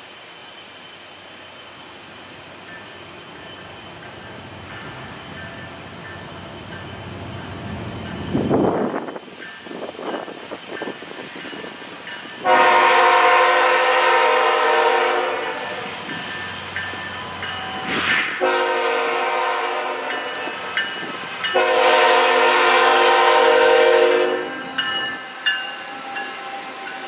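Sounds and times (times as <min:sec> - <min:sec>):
train rumble: 0:00.0 - 0:27.0
locomotive air horn blasts: 0:12.4 - 0:16.0, 0:18.4 - 0:20.3, 0:21.6 - 0:24.7.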